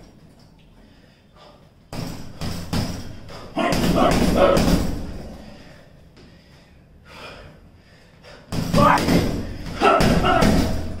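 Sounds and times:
punches on heavy bag: 8.5s - 11.0s.

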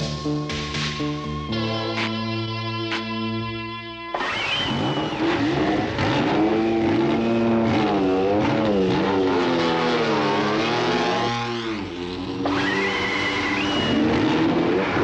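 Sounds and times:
racing car engine revving: 4.1s - 15.0s.

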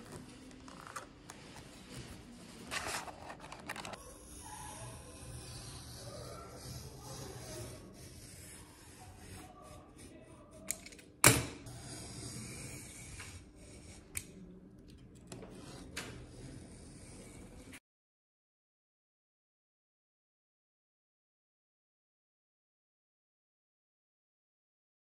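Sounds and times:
knife cutting paper: 0.0s - 10.8s.

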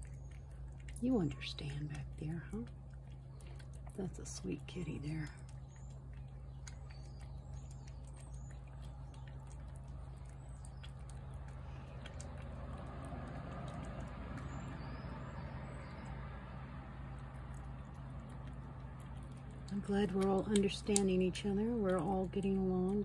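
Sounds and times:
cat chewing wet food: 0.0s - 23.0s
steady low hum: 0.0s - 23.0s.

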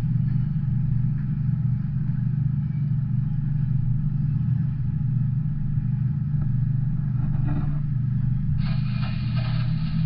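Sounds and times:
bright hiss: 8.6s - 10.0s.

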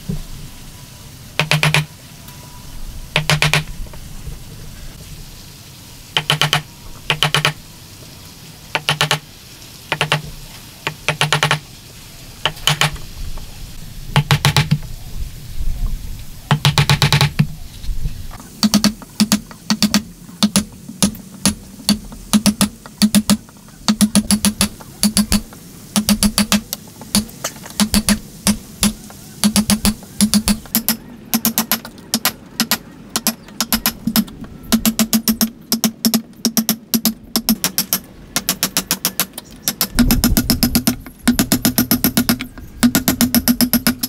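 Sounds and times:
hammer tapping chisel into wood: 1.4s - 1.9s, 3.2s - 3.7s, 6.2s - 7.6s, 8.8s - 9.2s, 9.9s - 10.3s, 10.9s - 11.6s, 12.5s - 13.0s, 16.5s - 17.4s, 18.6s - 25.4s, 26.0s - 44.0s.

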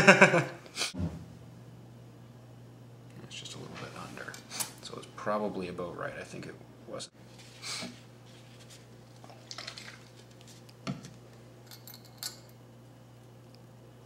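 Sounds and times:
steady low hum: 0.0s - 14.0s
paper towel rustling: 7.3s - 8.9s.

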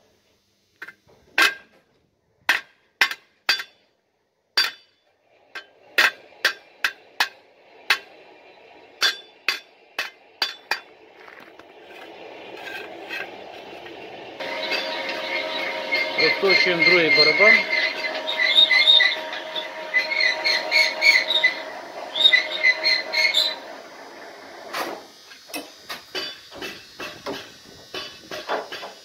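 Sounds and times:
hammer clanking on steel: 2.5s - 3.8s, 4.6s - 5.0s, 9.0s - 10.9s
steady background noise: 4.4s - 29.0s.

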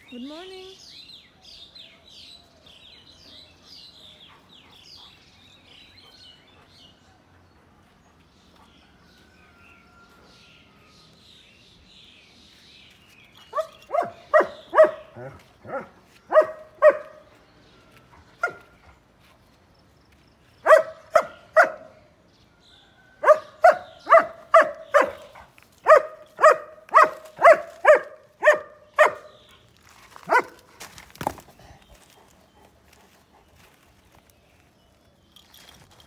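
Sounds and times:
dog barking: 13.5s - 17.2s, 18.4s - 18.7s, 20.6s - 21.9s, 23.2s - 29.4s, 30.3s - 30.6s.

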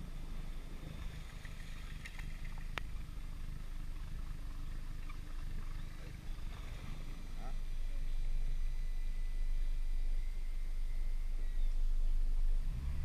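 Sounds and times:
boat motor rumbling: 0.0s - 13.0s
faint bird chirps: 4.0s - 12.6s.

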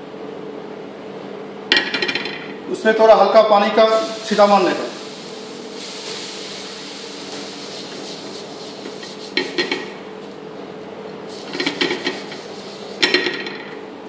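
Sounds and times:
water sizzling on hot pan: 3.9s - 10.0s, 11.4s - 13.2s.

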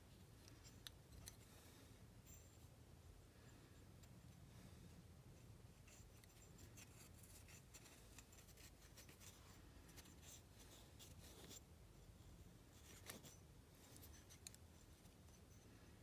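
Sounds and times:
low room hum: 0.0s - 16.0s
fingers handling metal piston: 0.2s - 2.8s, 12.8s - 16.0s.

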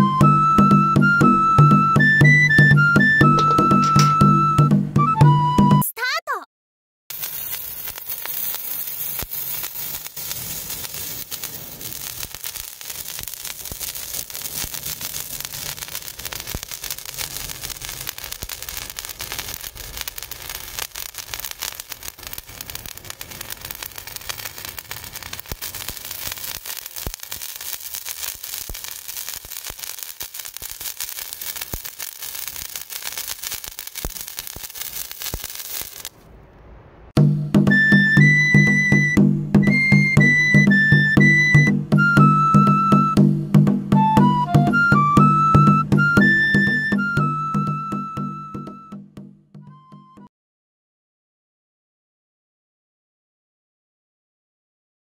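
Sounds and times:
sparkler hissing and crackling: 3.3s - 4.3s, 7.1s - 36.2s, 37.7s - 43.2s, 44.7s - 48.2s.

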